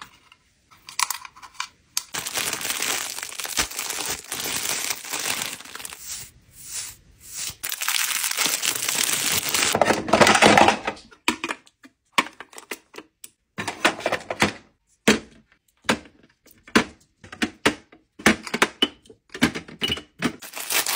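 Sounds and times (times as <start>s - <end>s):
cellophane crinkling: 2.1s - 6.2s, 7.6s - 9.8s, 20.4s - 20.9s.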